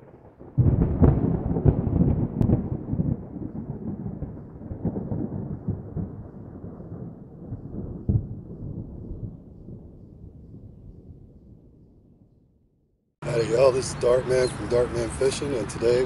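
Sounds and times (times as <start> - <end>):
rolling thunder: 0.0 - 12.4.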